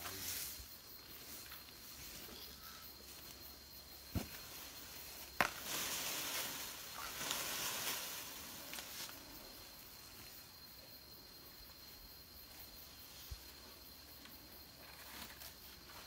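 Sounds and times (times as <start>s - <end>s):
palm leaves rustling: 0.0s - 10.6s
dull thump: 4.1s - 4.5s.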